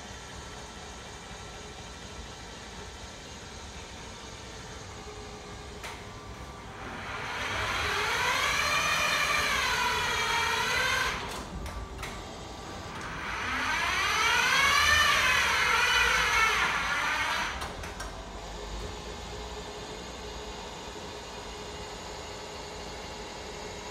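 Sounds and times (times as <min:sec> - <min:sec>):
stair climber motor whining: 0:04.9 - 0:19.0.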